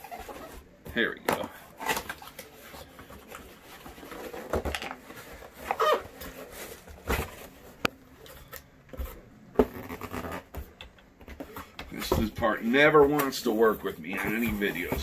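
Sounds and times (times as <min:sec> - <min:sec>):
cardboard scraping and rustling: 0:01.7 - 0:07.8, 0:11.4 - 0:15.0.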